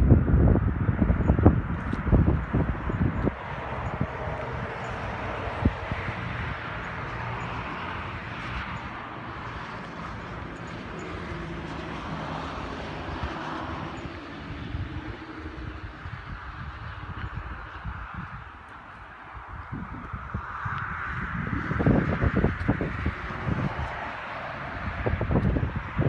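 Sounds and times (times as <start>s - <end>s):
engine drone: 0.0s - 26.0s
high engine tone: 0.8s - 19.0s.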